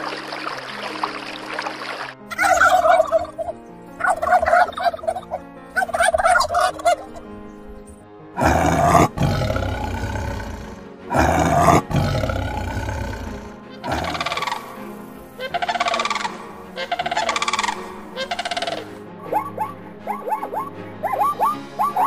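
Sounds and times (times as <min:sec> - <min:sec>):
quiet background music: 0:00.0 - 0:22.0
warbling animal calls: 0:02.3 - 0:07.3, 0:08.4 - 0:22.0
tiger roaring: 0:08.4 - 0:14.7.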